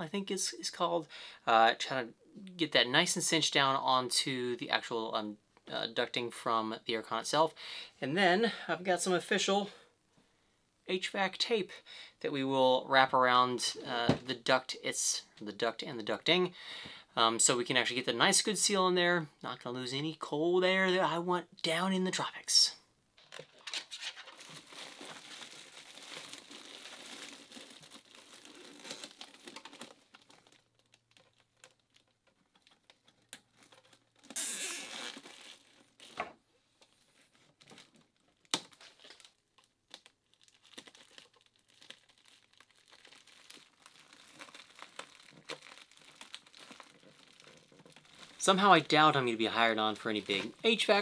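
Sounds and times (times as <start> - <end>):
tape and ducting crinkling: 23.2 - 51.0.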